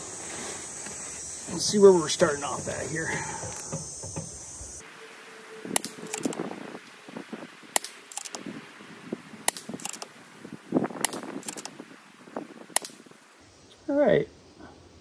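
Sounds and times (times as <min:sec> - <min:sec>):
air rifle shots cracking: 0:07.7 - 0:08.4, 0:09.4 - 0:10.1, 0:11.0 - 0:11.8, 0:12.7 - 0:13.2.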